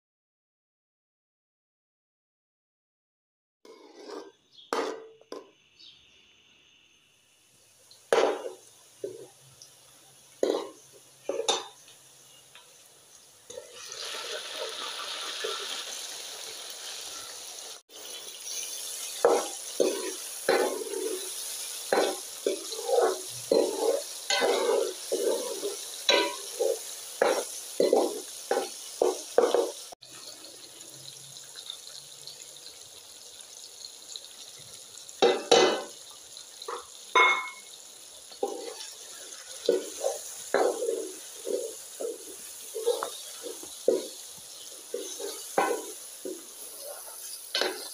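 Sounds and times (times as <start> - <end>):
metal spoon scraping pan: 3.7 - 5.2, 18.5 - 29.8, 38.4 - 47.9
vegetables sizzling in oil: 3.7 - 47.9.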